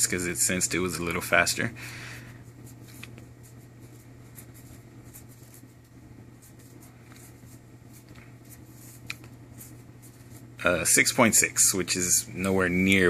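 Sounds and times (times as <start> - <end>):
steady low hum: 0.0 - 13.0
faint soft clicks and rustles: 2.4 - 10.6.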